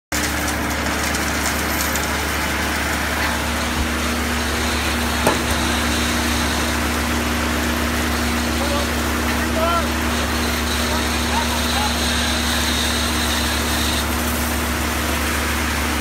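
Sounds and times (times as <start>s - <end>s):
rush of falling gravel: 0.1s - 11.2s, 14.0s - 16.0s
truck diesel engine running: 0.2s - 16.0s
sharp knock: 5.2s - 5.9s.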